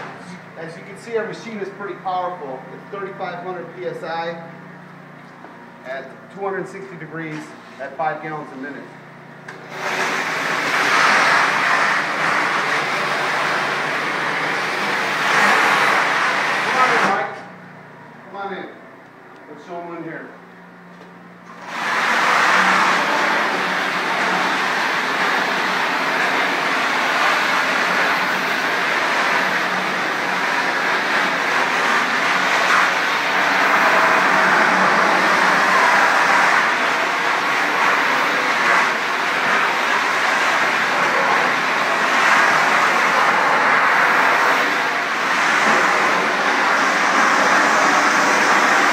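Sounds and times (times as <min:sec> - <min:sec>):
faint machine hum: 0:00.0 - 0:09.7, 0:11.9 - 0:21.6
pressure washer spraying tile floor: 0:09.5 - 0:17.3, 0:21.5 - 0:48.9.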